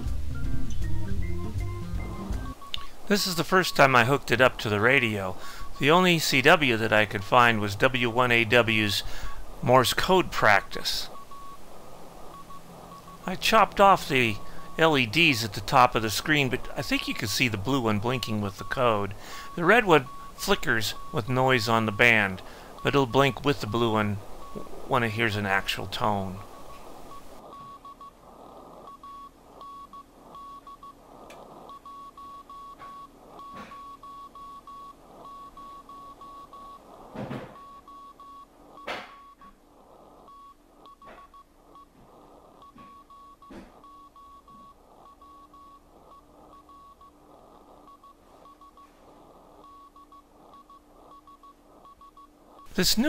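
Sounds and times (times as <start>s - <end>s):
morse code beeps: 0.4s - 9.2s, 9.8s - 28.2s, 28.8s - 31.0s, 31.6s - 39.5s, 40.2s - 42.0s, 42.6s - 52.9s
radio band noise: 2.8s - 32.2s, 32.8s - 53.0s.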